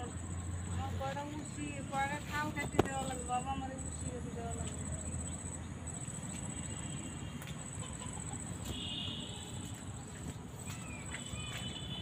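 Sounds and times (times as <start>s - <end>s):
bird calling: 10.6s - 12.0s.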